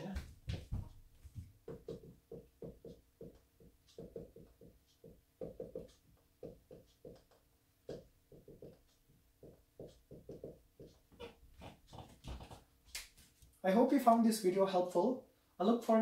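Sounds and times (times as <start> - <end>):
marker writing on whiteboard: 1.6 - 13.4.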